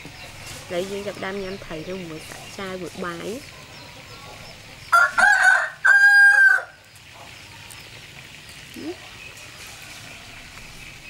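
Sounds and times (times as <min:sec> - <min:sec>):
rooster crowing: 0:04.9 - 0:06.8, 0:09.4 - 0:10.8.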